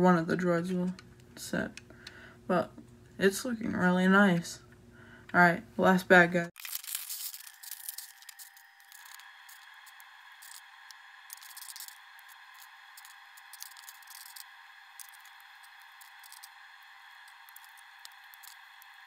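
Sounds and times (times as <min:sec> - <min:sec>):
plastic pieces clicking and rattling: 0:06.6 - 0:09.6, 0:11.3 - 0:16.5.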